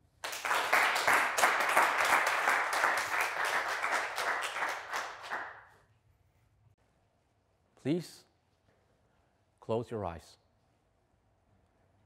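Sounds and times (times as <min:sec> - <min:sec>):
audience applauding: 0:00.2 - 0:05.7.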